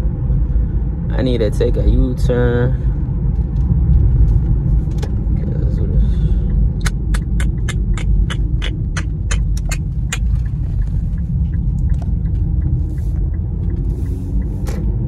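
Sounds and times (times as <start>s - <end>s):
car engine and road rumble: 0.0s - 15.0s
turn signal clicking: 6.5s - 15.0s.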